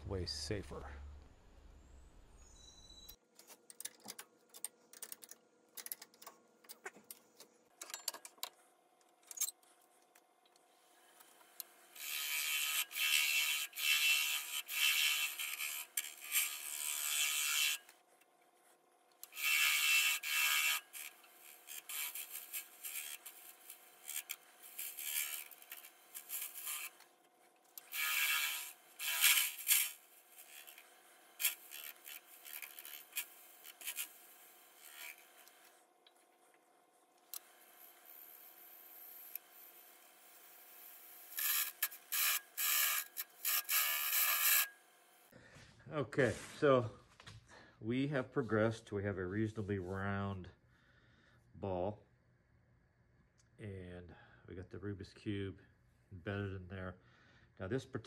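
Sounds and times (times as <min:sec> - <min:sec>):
lathe tool scraping: 0:12.0 - 0:17.9, 0:19.3 - 0:27.0, 0:27.8 - 0:35.7, 0:37.8 - 0:44.8.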